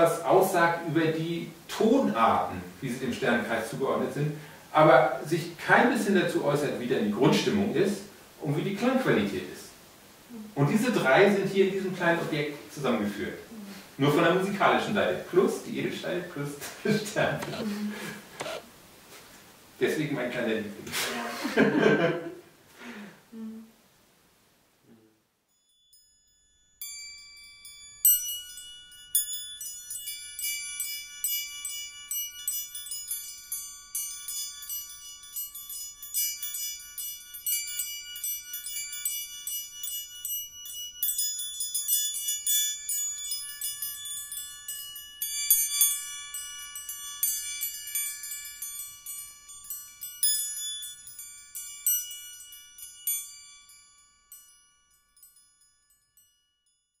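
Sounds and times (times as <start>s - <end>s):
metal plate chimes ringing: 25.5s - 56.8s.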